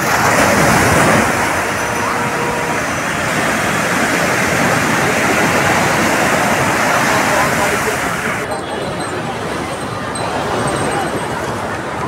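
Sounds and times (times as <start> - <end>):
sea surf breaking on shore: 0.0 - 12.0.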